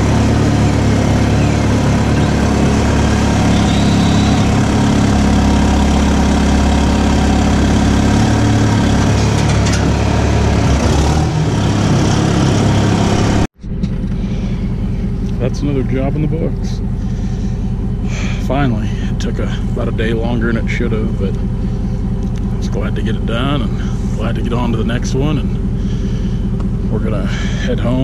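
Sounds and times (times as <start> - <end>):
diesel engine idling: 0.0 - 28.0.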